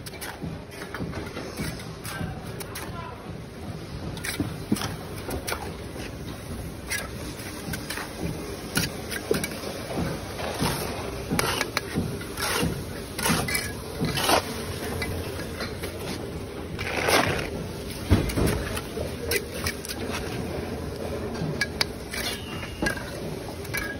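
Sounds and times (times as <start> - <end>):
trowel scraping mortar: 6.8 - 16.2, 16.8 - 20.5
trowel tapping bricks: 6.9 - 14.6.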